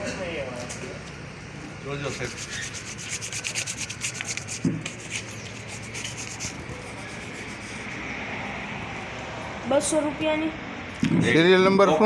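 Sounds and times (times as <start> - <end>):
rapid rubbing and rustling: 2.0 - 7.9.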